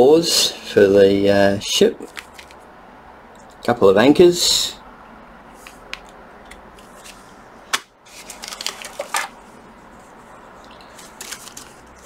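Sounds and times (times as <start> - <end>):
plastic bags crinkling: 8.1 - 9.5, 10.6 - 12.0.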